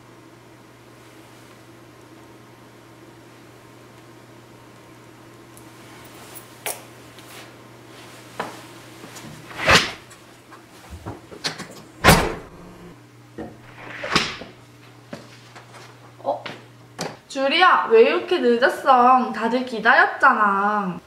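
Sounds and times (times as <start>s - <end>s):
low steady hum: 10.8s - 21.0s
loud door knocks: 12.0s - 12.7s.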